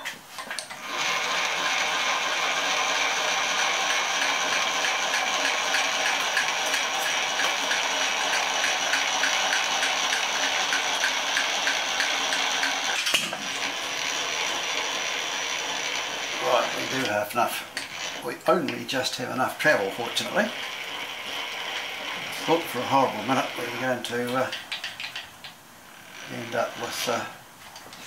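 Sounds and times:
milling machine whirring: 0.5s - 27.4s.

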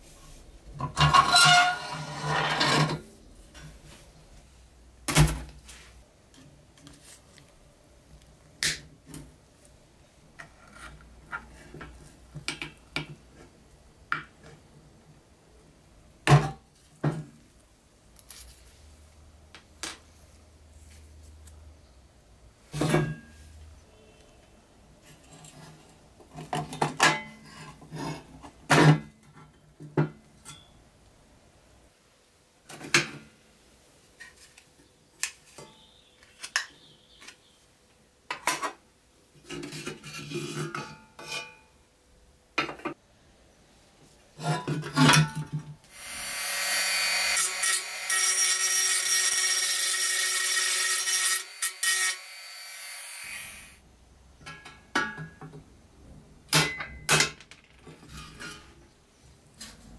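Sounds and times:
power drill running: 45.9s - 53.8s.

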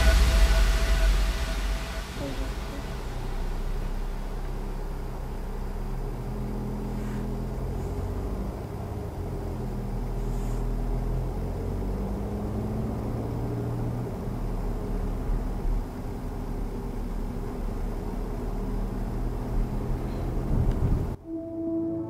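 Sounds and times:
car engine hum: 0.0s - 21.6s
road noise: 0.0s - 22.0s.

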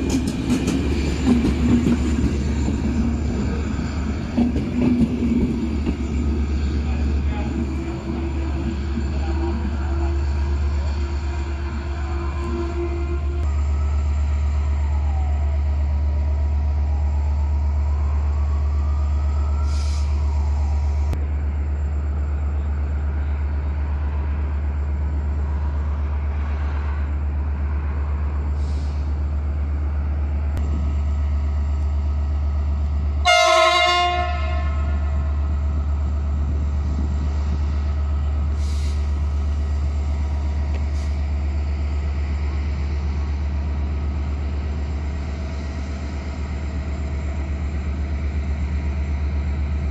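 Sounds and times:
diesel locomotive horn blast: 9.2s - 13.5s, 33.2s - 35.4s
idling diesel engines rumble: 35.6s - 49.9s.

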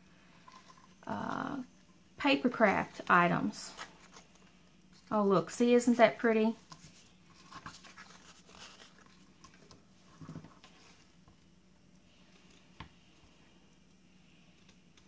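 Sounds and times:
rustling of satin ribbon: 6.5s - 11.2s.

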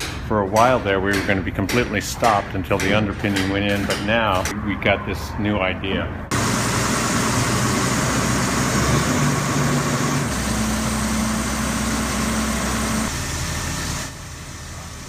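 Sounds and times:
crane engine running: 6.3s - 15.0s.

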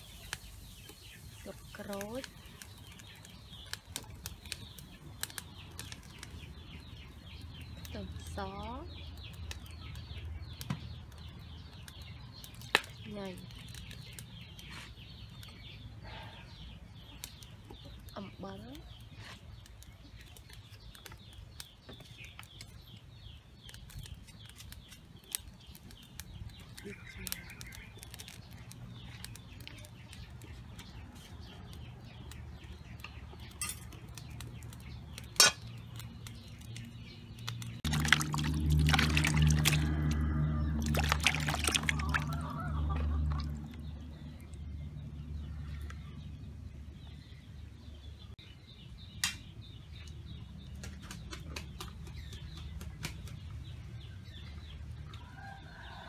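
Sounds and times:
wood fire crackling: 0.0s - 15.9s, 16.6s - 46.0s
birds chirping faintly: 0.0s - 56.0s
steady low rumble: 37.8s - 47.4s.

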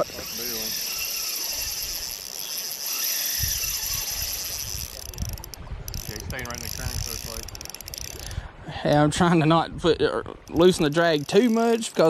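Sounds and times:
high insect buzz: 0.0s - 5.4s
fishing reel clicking: 0.0s - 8.4s, 10.4s - 12.0s
wind rumble on microphone: 3.4s - 10.9s.

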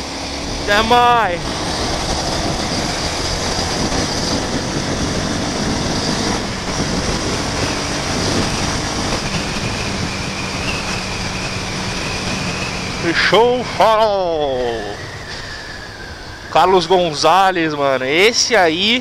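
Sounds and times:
motorcycle engine running: 0.0s - 13.9s
wind rush on microphone: 0.0s - 17.9s.

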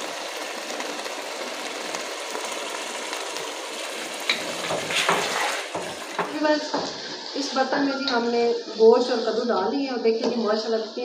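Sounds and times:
curry sizzling in a pot: 0.0s - 9.9s.

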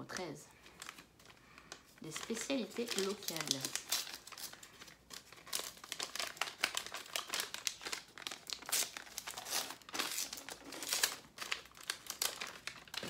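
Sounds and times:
gift wrapping crinkling: 0.0s - 13.0s.

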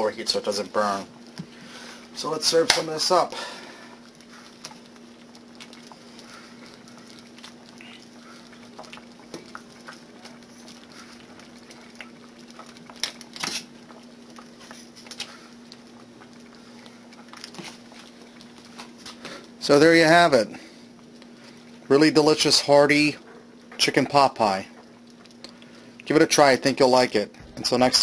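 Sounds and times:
ladle scooping thick stew: 4.1s - 19.0s.

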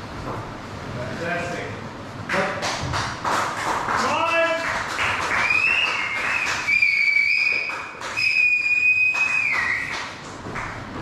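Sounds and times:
person whistling high notes: 5.4s - 10.0s.

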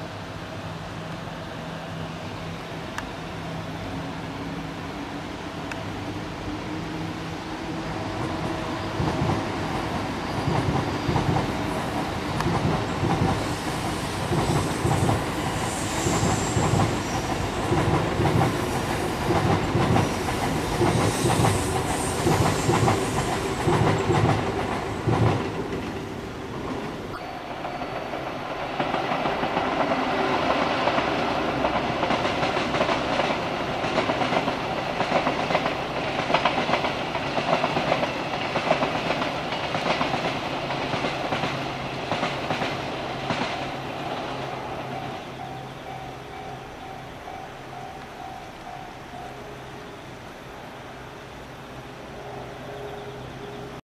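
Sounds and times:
rail rumble: 0.0s - 53.8s
train hum: 0.0s - 53.8s
train wheels clickety-clack: 7.8s - 27.1s, 27.7s - 49.4s.

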